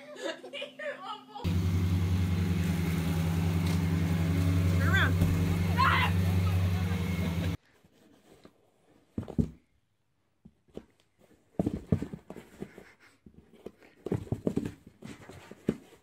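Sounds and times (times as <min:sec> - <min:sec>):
thumps and scrapes on cardboard box: 0:11.6 - 0:12.9.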